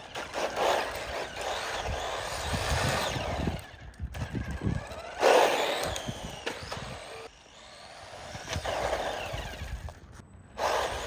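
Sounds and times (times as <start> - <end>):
toy car motor whining: 0.0 - 11.0
tyres and drivetrain noise: 0.0 - 11.0.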